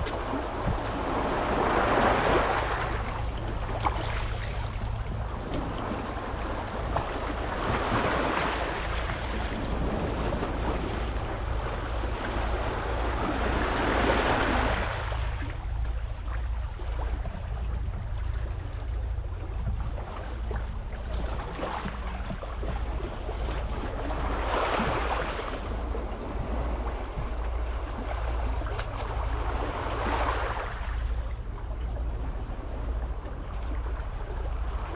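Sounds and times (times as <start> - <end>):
wind rumble on microphone: 0.0 - 34.9.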